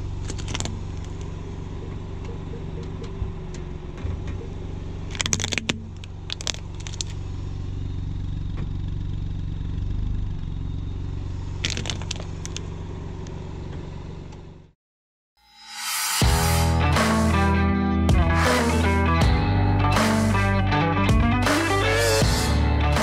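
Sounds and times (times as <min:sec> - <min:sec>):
car engine humming: 0:00.0 - 0:14.7, 0:16.2 - 0:23.0
plastic toys cracking under tyre: 0:00.1 - 0:01.3, 0:05.0 - 0:07.2, 0:11.6 - 0:12.7.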